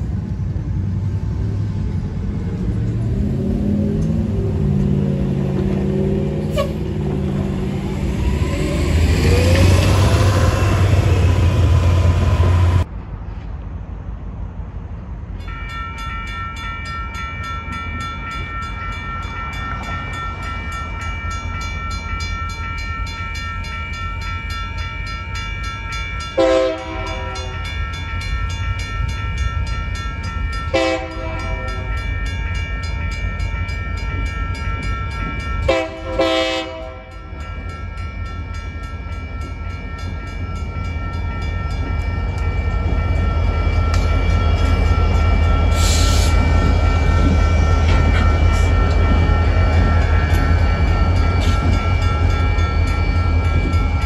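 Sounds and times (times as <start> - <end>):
locomotive engine rumble: 0.0 - 14.3, 39.2 - 54.0
railroad crossing bell ringing: 3.1 - 12.9, 15.4 - 54.0
locomotive horn: 6.4 - 7.2, 26.4 - 27.6, 30.6 - 32.5, 35.6 - 37.3.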